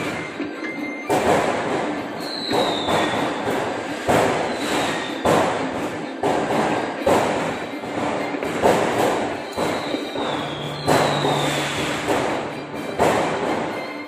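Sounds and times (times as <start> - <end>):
fireworks bursting: 0.0 - 14.0
thin falling whistle: 9.8 - 11.9.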